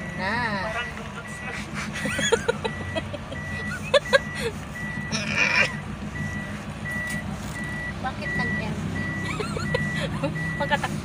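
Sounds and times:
moving van hum: 0:00.0 - 0:11.0
vehicle warning beep: 0:00.0 - 0:11.0
woman laughing: 0:01.5 - 0:04.6, 0:09.2 - 0:11.0.

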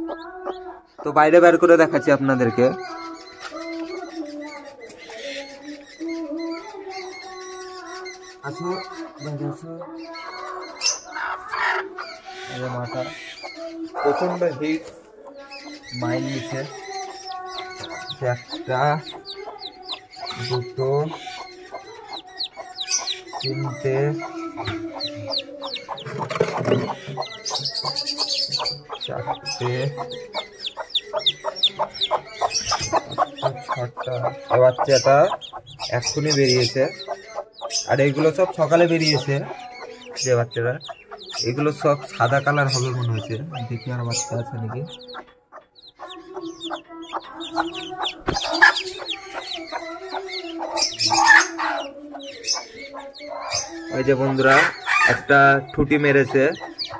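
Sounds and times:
chicks peeping: 0:00.0 - 0:56.9
hen clucking low: 0:42.6 - 0:55.4.

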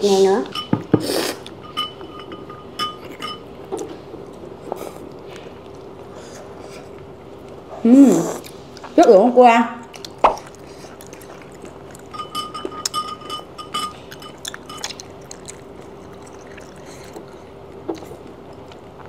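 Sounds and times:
faint steady hum: 0:00.0 - 0:19.0
utensils clinking on ceramic dishes: 0:00.4 - 0:03.5, 0:11.9 - 0:15.0.

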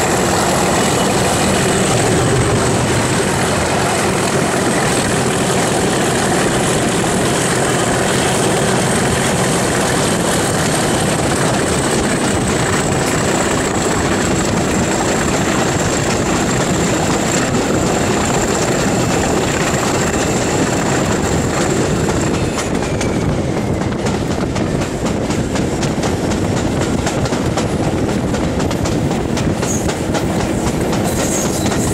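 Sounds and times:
rushing air: 0:00.0 - 0:07.7
diesel locomotive engine drone: 0:00.0 - 0:31.9.

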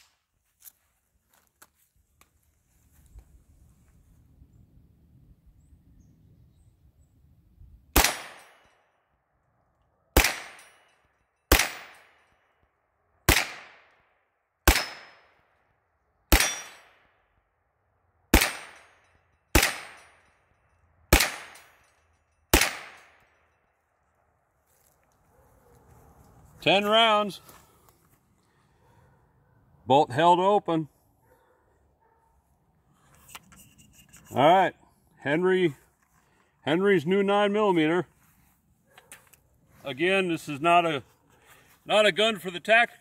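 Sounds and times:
carbine gunshots: 0:08.0 - 0:08.7, 0:10.2 - 0:10.7, 0:11.5 - 0:12.2, 0:13.3 - 0:13.9, 0:14.6 - 0:15.2, 0:16.3 - 0:17.0, 0:18.3 - 0:18.9, 0:19.5 - 0:20.1, 0:21.1 - 0:21.7, 0:22.5 - 0:23.2.

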